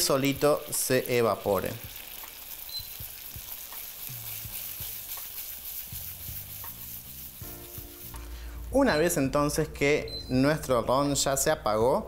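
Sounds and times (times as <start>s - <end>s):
crepe sizzling in a frying pan: 0.0s - 8.8s.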